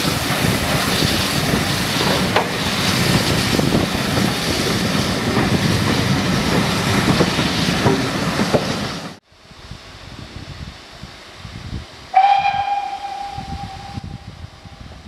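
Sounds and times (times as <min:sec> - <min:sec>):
train wheels clicking over rails: 0:00.0 - 0:09.2.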